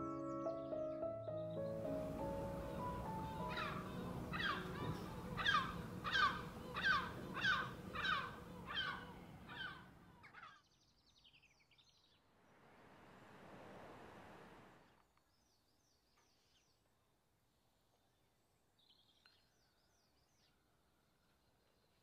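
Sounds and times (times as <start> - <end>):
crow cawing: 3.4 - 10.5
faint small birds chirping: 14.8 - 22.0.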